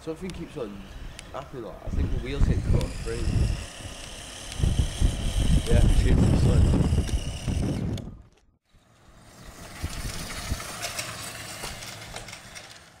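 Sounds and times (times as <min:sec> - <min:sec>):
electric motor whine: 0:00.3 - 0:13.0
tyre noise on tarmac: 0:04.6 - 0:13.0.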